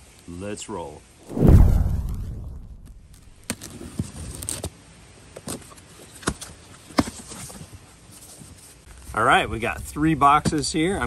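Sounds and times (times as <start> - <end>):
deep boom: 1.3 - 3.4.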